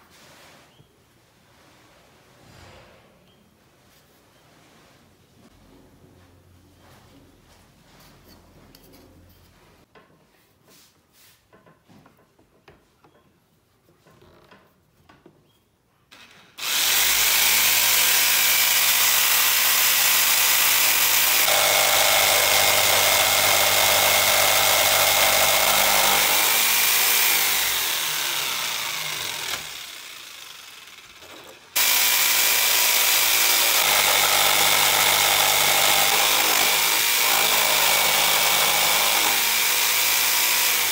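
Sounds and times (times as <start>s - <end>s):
jigsaw cutting wood: 16.6s - 40.9s.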